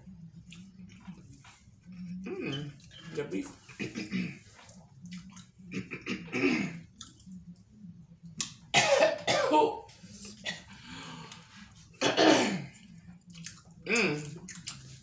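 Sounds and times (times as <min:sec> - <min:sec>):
person coughing: 0:05.8 - 0:06.8, 0:08.8 - 0:09.8, 0:12.0 - 0:12.7.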